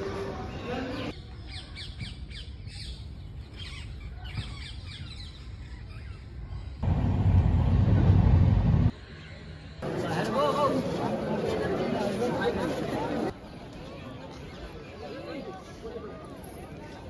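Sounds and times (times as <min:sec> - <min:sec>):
train rumbling: 0:06.8 - 0:08.9.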